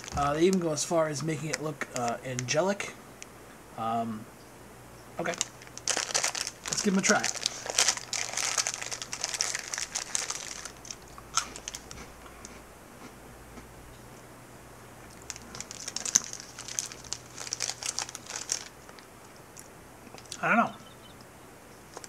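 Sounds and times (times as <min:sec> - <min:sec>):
candy wrapper crinkling: 0:00.0 - 0:02.7, 0:05.2 - 0:12.1, 0:15.1 - 0:20.4.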